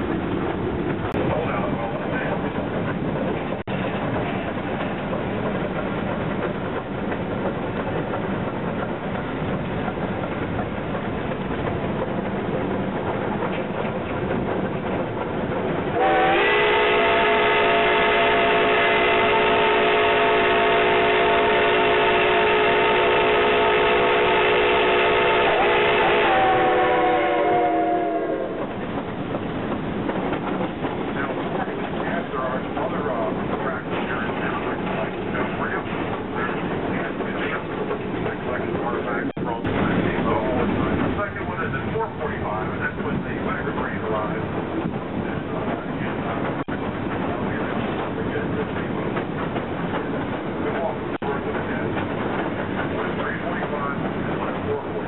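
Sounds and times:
steam locomotive chuffing: 0.0s - 55.0s
chord steam whistle blast: 16.0s - 28.6s.

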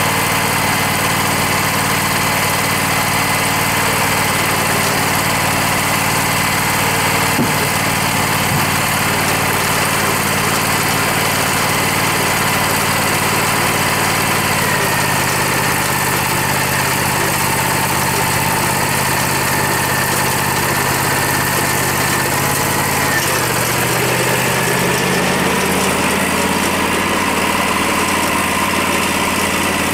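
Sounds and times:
sawmill engine running: 0.0s - 29.9s.

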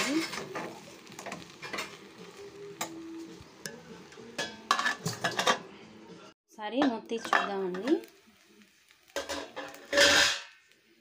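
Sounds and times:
spoon scraping food in pan: 3.6s - 5.6s, 9.1s - 10.6s.

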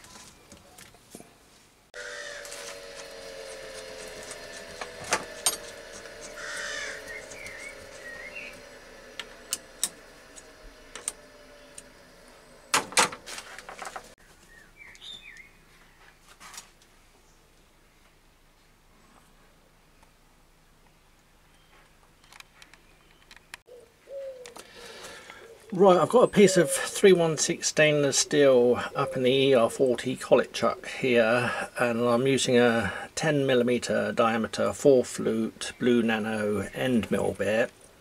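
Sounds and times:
low steady hum: 0.0s - 14.7s
bird calls: 2.0s - 2.5s, 5.3s - 12.8s, 14.2s - 16.2s, 21.5s - 27.0s.

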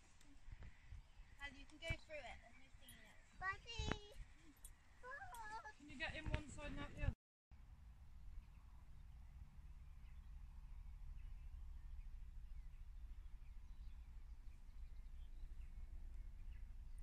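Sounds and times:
distant bird chirps: 8.3s - 17.0s.

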